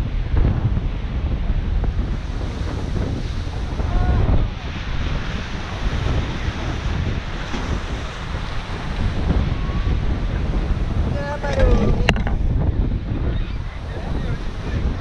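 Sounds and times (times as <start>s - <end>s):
wind buffeting microphone: 0.0s - 15.0s
surf breaking over rocks: 2.1s - 12.6s.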